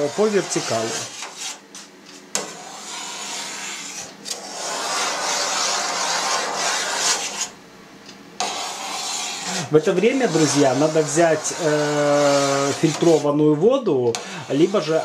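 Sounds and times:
knife scraping through cheese curd: 0:00.0 - 0:01.9, 0:02.5 - 0:07.6, 0:08.4 - 0:13.3.

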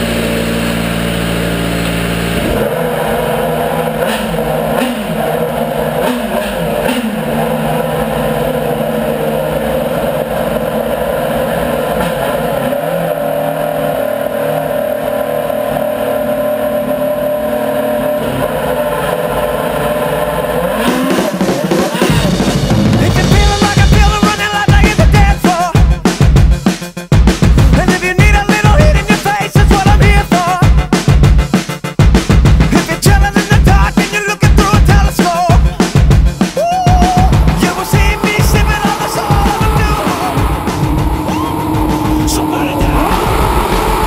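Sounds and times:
engine throttle blips: 0:00.0 - 0:34.8, 0:35.4 - 0:44.0
racing engine running: 0:00.0 - 0:44.0.

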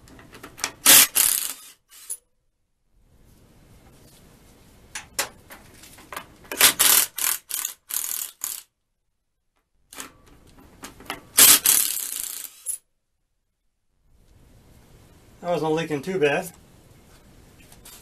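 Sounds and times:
impact driver spinning bolts: 0:00.3 - 0:02.2, 0:06.5 - 0:08.7, 0:11.0 - 0:12.8.

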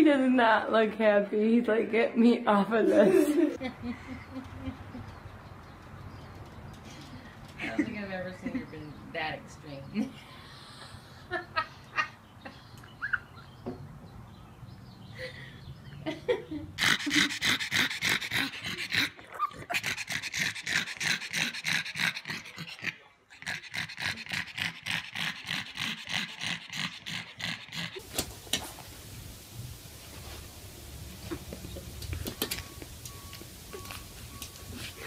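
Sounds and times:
dog panting: 0:16.8 - 0:28.0.

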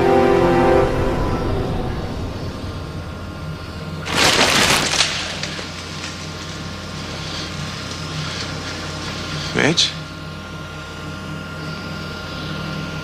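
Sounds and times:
steady low hum: 0:00.0 - 0:13.0
loud crash: 0:00.6 - 0:06.6.

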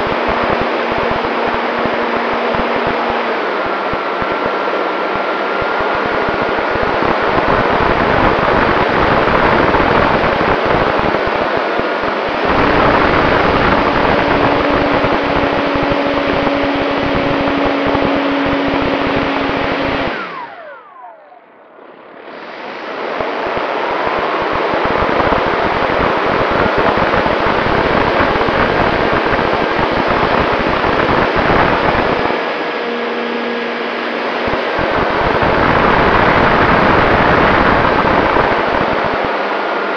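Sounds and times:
wind rush: 0:00.0 - 0:20.5, 0:22.2 - 0:32.8, 0:33.4 - 0:39.9
electric motor and propeller whine: 0:00.0 - 0:39.9.

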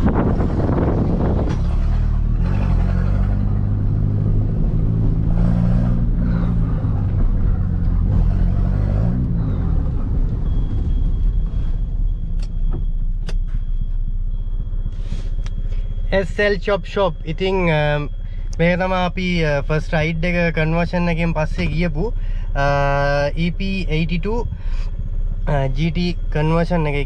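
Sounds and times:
car engine running: 0:00.0 - 0:27.0
faint high whine: 0:09.4 - 0:27.0.

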